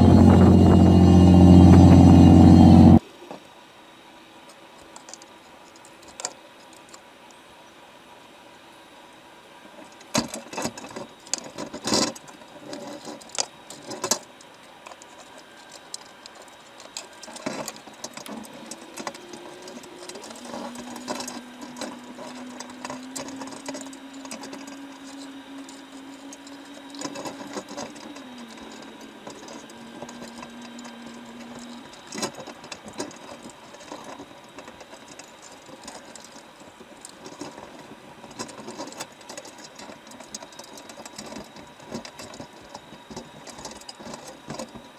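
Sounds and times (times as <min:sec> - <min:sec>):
faint hum: 0:00.0 - 0:44.9
underwater clicking and crackling: 0:10.0 - 0:44.9.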